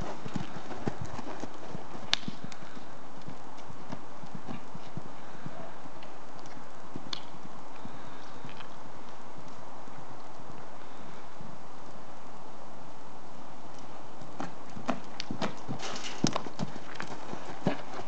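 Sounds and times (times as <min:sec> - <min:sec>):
hoofbeats on dirt: 0:00.0 - 0:08.8, 0:14.2 - 0:18.0.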